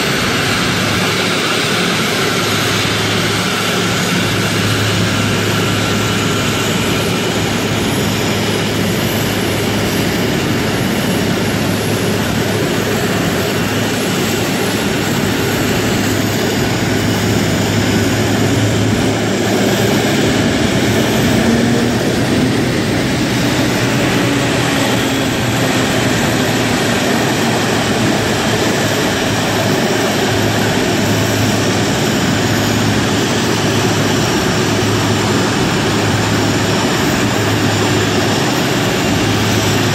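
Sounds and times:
jet engines idling: 0.0s - 39.9s.

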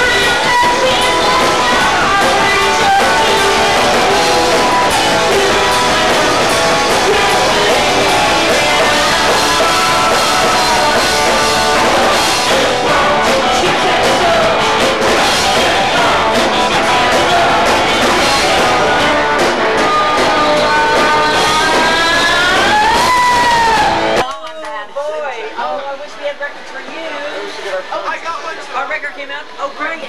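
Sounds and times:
woman singing: 0.0s - 23.7s
drum kit: 0.0s - 24.3s
electric guitar: 0.0s - 24.3s.

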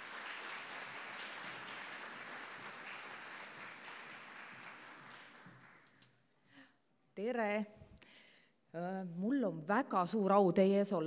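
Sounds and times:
large audience applauding: 0.0s - 6.2s.

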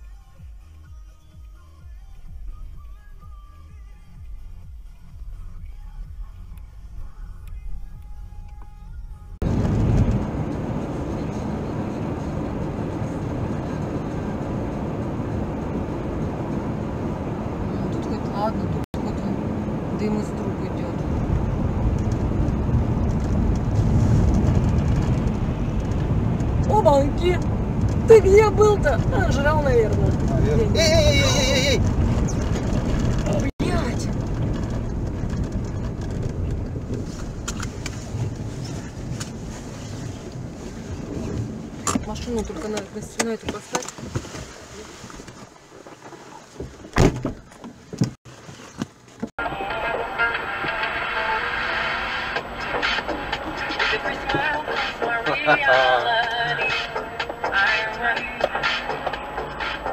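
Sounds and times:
car engine hum: 0.0s - 59.9s
tyre rumble: 21.4s - 42.8s.

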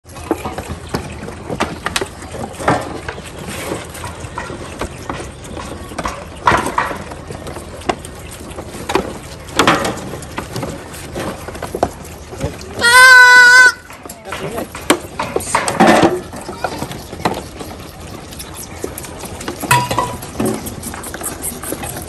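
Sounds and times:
goat kids suckling from bottles: 7.0s - 13.9s, 16.2s - 22.0s.

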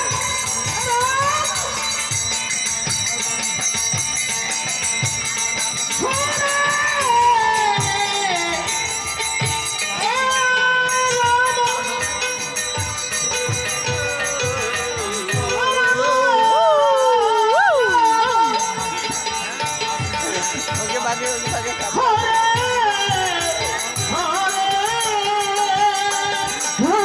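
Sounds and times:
hand drum beat: 0.0s - 27.0s
small metal cymbals jingling: 0.0s - 27.0s
person singing a devotional chant: 5.9s - 19.2s, 20.2s - 27.0s.

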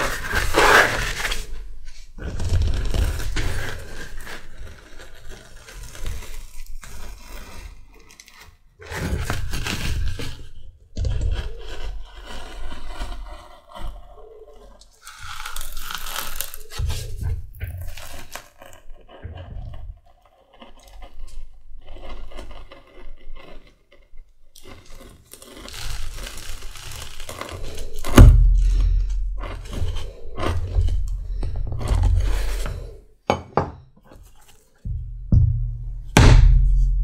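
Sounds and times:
knife slicing through leather: 0.0s - 1.6s, 11.4s - 18.8s, 24.6s - 33.0s
mallet striking a punch: 35.3s - 37.0s.

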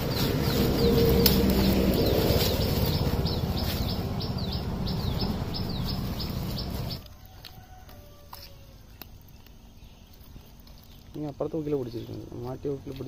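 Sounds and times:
loud low rumble: 0.0s - 7.0s
bird chirping: 0.0s - 7.1s, 8.9s - 13.0s.

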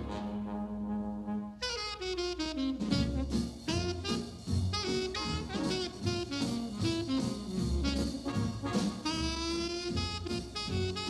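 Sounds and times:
saxophone-led horn line: 0.0s - 11.0s
drum kit: 2.6s - 11.0s.

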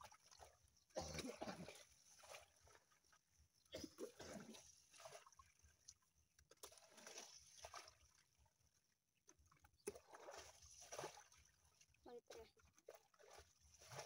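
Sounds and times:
water sloshing and splashing: 0.0s - 14.0s.

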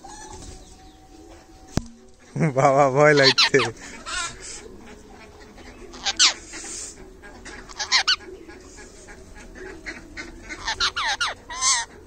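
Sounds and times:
parrot squawking: 3.1s - 12.0s.

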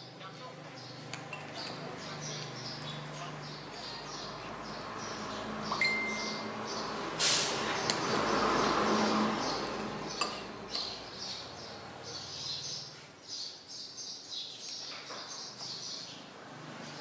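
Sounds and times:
small birds chirping: 0.0s - 17.0s
spoon clinking on ceramic bowl: 10.2s - 10.9s.

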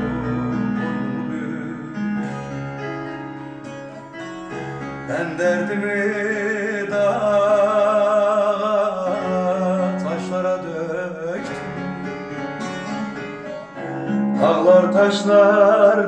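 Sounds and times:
man singing long held notes: 0.0s - 2.5s, 5.1s - 11.8s, 14.4s - 16.0s
electronic keyboard: 0.0s - 16.0s
plucked lute: 0.0s - 16.0s.

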